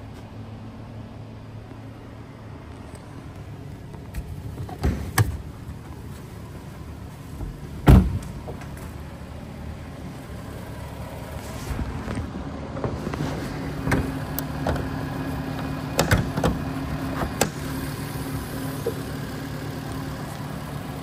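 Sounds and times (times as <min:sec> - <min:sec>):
steady low hum: 0:00.0 - 0:21.0
car door shutting: 0:03.9 - 0:05.5, 0:07.4 - 0:09.0, 0:11.7 - 0:14.9, 0:15.9 - 0:17.6.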